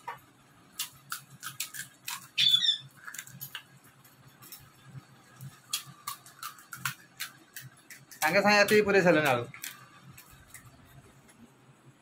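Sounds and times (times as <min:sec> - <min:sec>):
crisp shells cracking: 0:00.7 - 0:04.7, 0:05.4 - 0:10.8.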